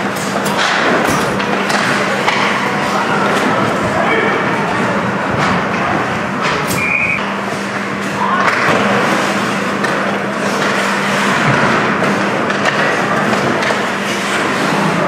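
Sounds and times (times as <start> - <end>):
steady hum: 1.7 - 10.9
brief high tone: 6.8 - 7.3.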